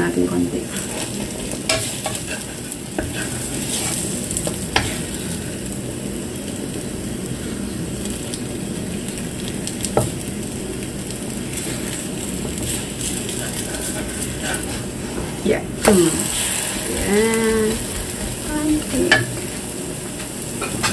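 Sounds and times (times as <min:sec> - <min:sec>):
batter sizzling in frying pan: 0:00.0 - 0:20.9
spatula scraping pan: 0:00.6 - 0:05.2, 0:11.6 - 0:19.6.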